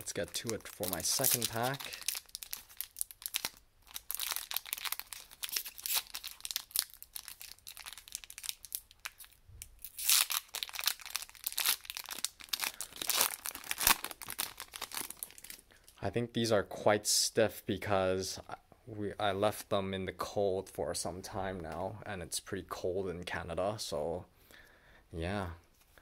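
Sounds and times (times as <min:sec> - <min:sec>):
cards rustling: 0:00.0 - 0:15.6
foil wrapper crinkling and tearing: 0:00.0 - 0:15.6.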